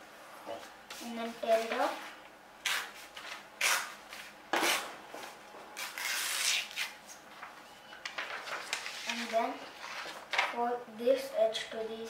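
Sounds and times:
paper rustling and tearing: 5.8 - 10.6.

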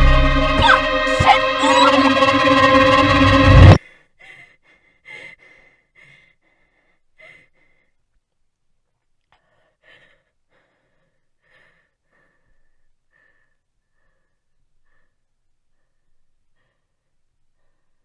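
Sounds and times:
woman breathing heavily: 3.8 - 8.0, 9.4 - 18.0.

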